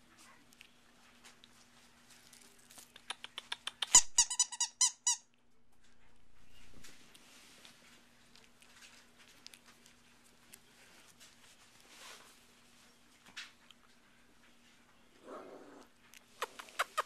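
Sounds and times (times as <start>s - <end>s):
soft rustle: 0.0s - 3.0s, 5.7s - 17.0s
puppy squeaking: 3.0s - 5.2s.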